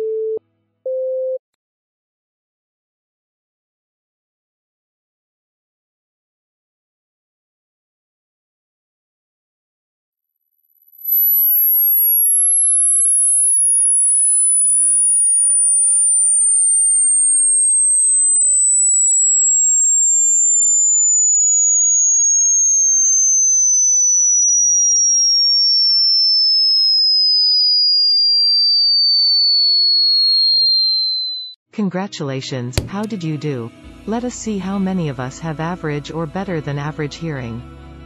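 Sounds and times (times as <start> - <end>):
sine tone gliding down: 11.0 - 31.6.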